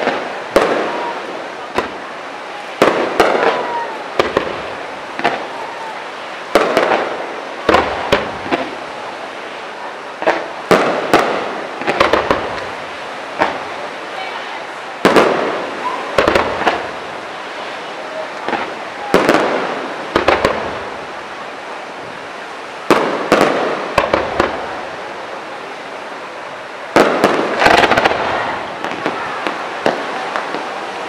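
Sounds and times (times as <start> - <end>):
fireworks rumble: 0.0 - 31.0
fireworks shells bursting: 27.0 - 30.6.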